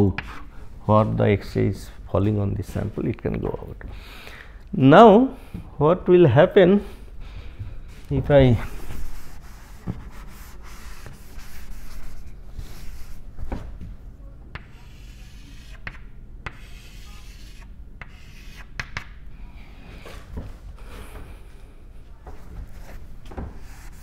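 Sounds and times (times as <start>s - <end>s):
duster rubbing chalkboard: 8.6s - 13.6s, 14.6s - 19.0s, 22.7s - 24.0s.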